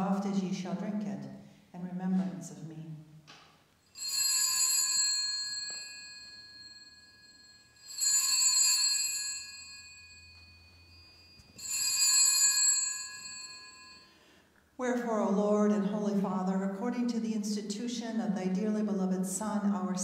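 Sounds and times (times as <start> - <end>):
altar bells jingling: 3.8 - 14.2.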